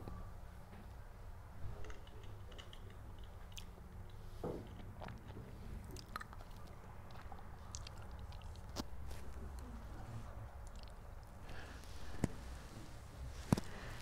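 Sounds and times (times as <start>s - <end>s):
low room hum: 0.0s - 14.0s.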